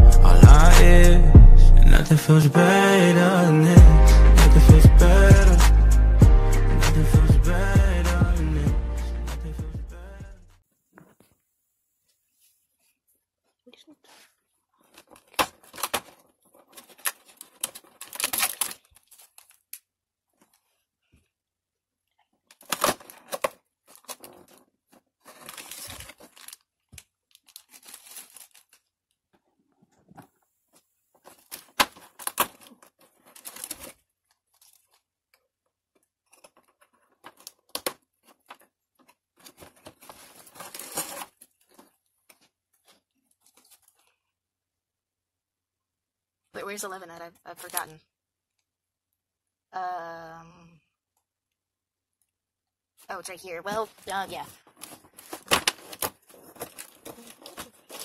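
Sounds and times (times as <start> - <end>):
plastic bag crinkling and tearing: 14.8 - 20.7, 22.5 - 29.0, 31.2 - 35.1, 39.4 - 42.0, 53.9 - 58.0.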